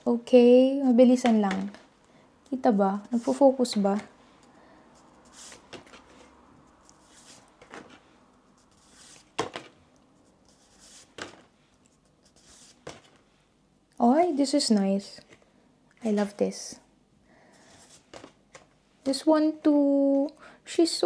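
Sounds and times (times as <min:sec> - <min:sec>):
paper rustling: 0:05.2 - 0:13.3, 0:17.7 - 0:18.6.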